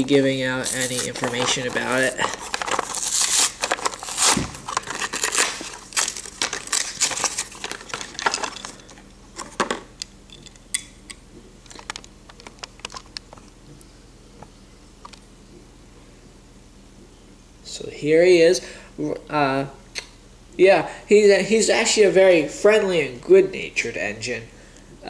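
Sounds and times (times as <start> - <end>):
cardboard tearing and plastic crinkling: 0.6 - 9.6.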